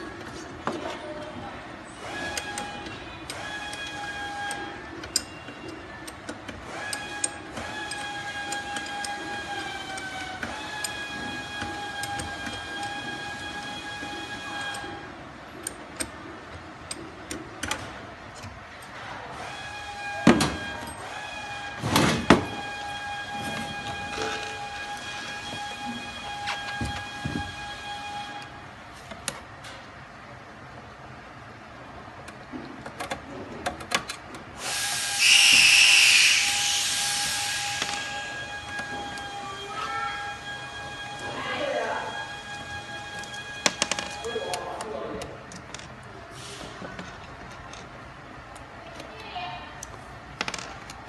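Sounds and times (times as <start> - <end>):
screwdriver clicking on metal: 2.3 - 10.2
air hissing out: 34.6 - 38.5, 46.3 - 46.9
small electric motor whining: 34.6 - 40.4
steady whistle-like tone: 35.0 - 42.1.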